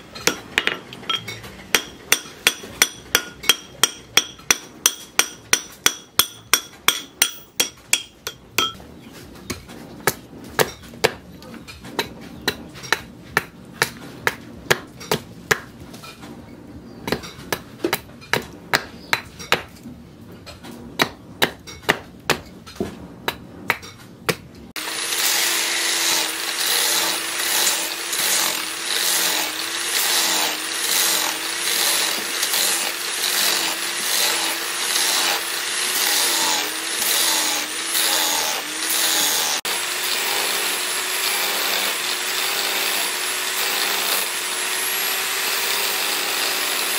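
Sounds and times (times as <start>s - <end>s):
angle grinder sanding wood: 24.8s - 46.9s.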